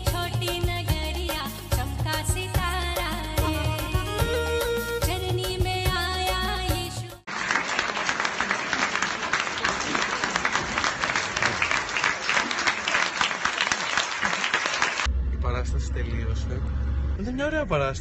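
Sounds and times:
audience applauding: 0:07.3 - 0:15.1.

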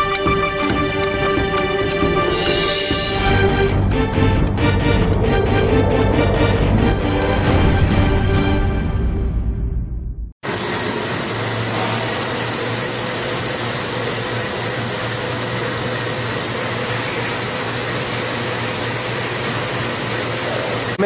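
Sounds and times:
machine whirring hiss: 0:10.4 - 0:21.0.

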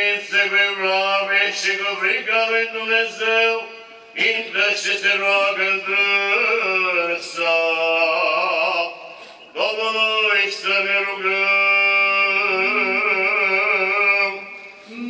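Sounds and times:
men singing liturgical chant: 0:04.2 - 0:08.9, 0:09.5 - 0:14.4.

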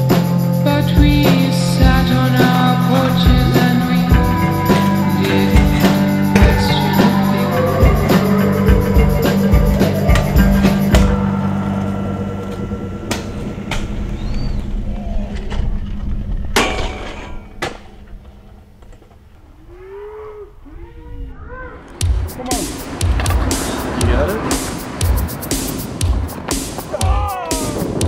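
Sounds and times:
rock music with drums: 0:00.0 - 0:11.6, 0:22.0 - 0:28.0
scooter clacking on concrete: 0:22.0 - 0:28.0.

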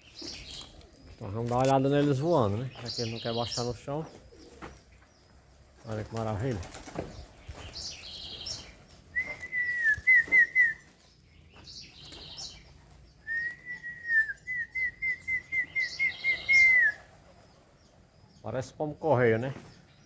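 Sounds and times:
person whistling: 0:09.2 - 0:10.8.

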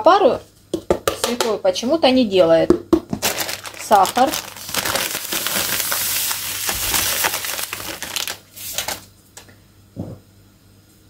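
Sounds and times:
plastic packet clicks and knocks: 0:02.9 - 0:05.8
sugar pouring into a bowl: 0:03.9 - 0:08.8.

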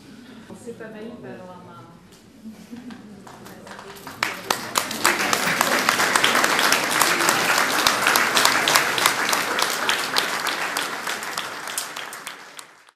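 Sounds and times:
audience applauding: 0:03.2 - 0:12.9.

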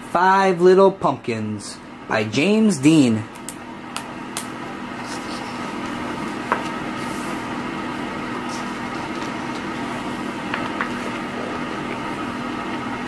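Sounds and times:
mechanical room hum: 0:00.0 - 0:13.0.

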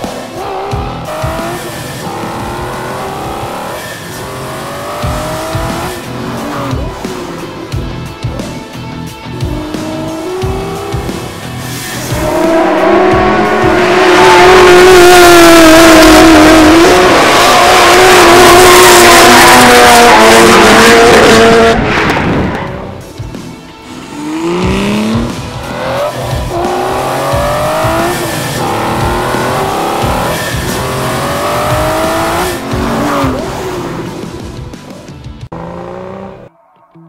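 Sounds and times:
race car engine revving: 0:00.0 - 0:36.6
drift car engine: 0:00.0 - 0:37.0
loud tyre squeal: 0:00.4 - 0:05.4, 0:11.5 - 0:23.0.

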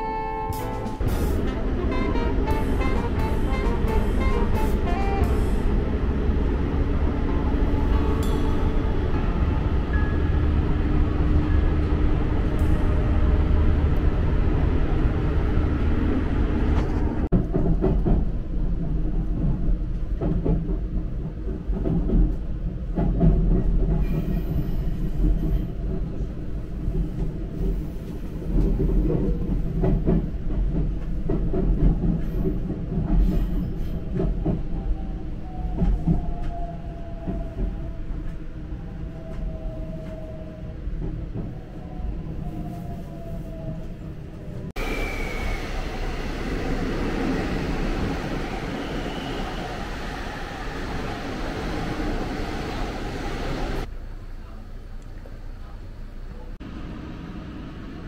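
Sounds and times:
train rumble: 0:00.0 - 0:58.0
train braking whine: 0:44.8 - 0:53.9.

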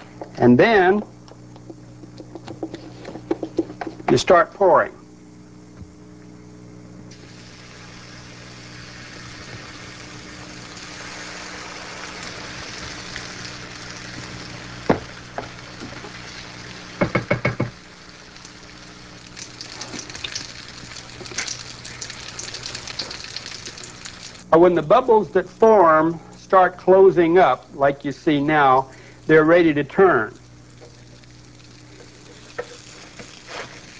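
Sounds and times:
batter sizzling in a skillet: 0:07.1 - 0:24.5, 0:30.2 - 0:33.9
sharp knocks: 0:17.0 - 0:17.8.

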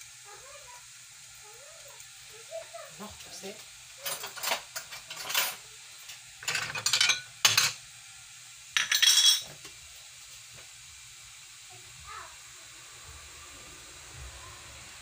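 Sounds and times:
dishes clattering and scraping: 0:04.0 - 0:07.8, 0:08.7 - 0:09.7.

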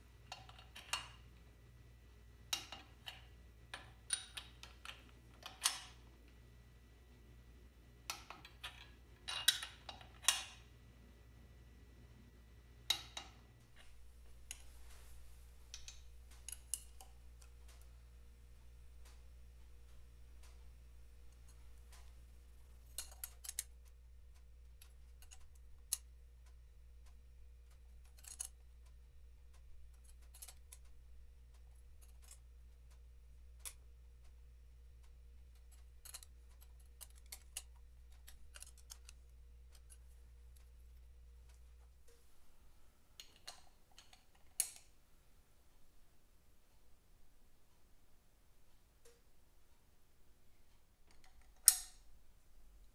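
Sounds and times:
low steady hum: 0:00.0 - 0:52.9
spanner clinking on metal: 0:02.5 - 0:06.0, 0:08.1 - 0:10.6
faint metallic clicks and taps: 0:12.8 - 0:42.4, 0:43.2 - 0:45.0, 0:50.6 - 0:52.2.

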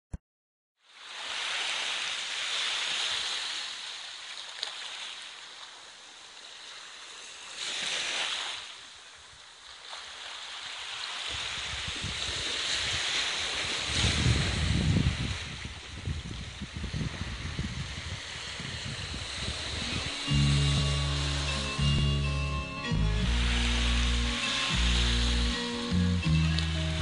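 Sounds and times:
sea waves washing onto sand: 0:00.8 - 0:27.0
wind rumble on microphone: 0:11.3 - 0:22.3.

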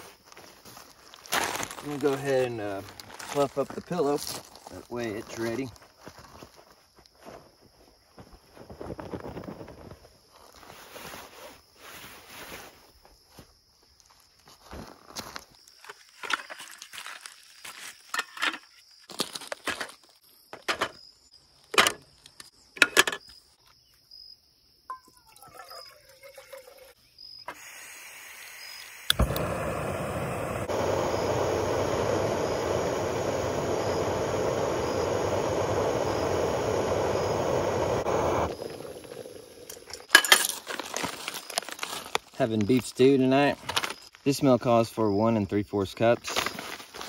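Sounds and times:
gas burner roaring: 0:27.6 - 0:40.0
stove igniter click: 0:29.1 - 0:32.4.

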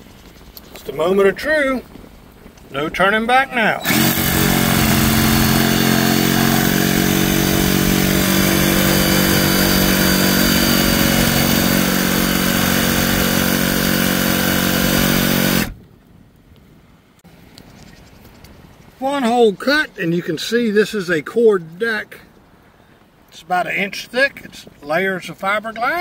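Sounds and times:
jigsaw cutting fiberglass: 0:03.8 - 0:15.8.

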